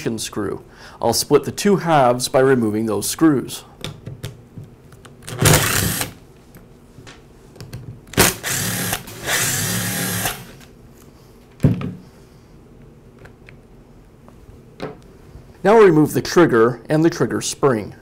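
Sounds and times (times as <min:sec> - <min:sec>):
cordless drill running: 0:05.4 - 0:06.2, 0:08.2 - 0:10.6.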